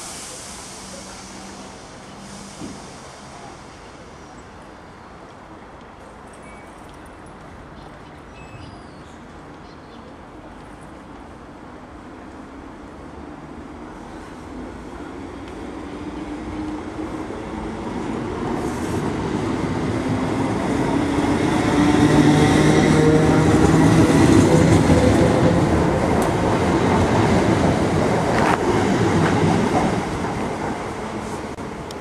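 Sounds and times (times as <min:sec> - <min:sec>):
train wheels rumbling: 0:13.8 - 0:32.0.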